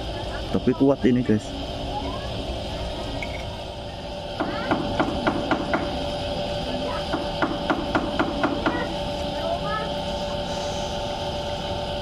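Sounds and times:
repeated sharp knocks: 0:04.4 - 0:06.0, 0:07.1 - 0:08.9.

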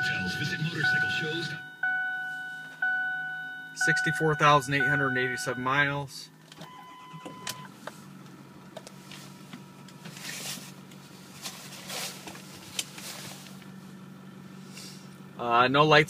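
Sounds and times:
diesel engine idling: 0:00.0 - 0:16.0.

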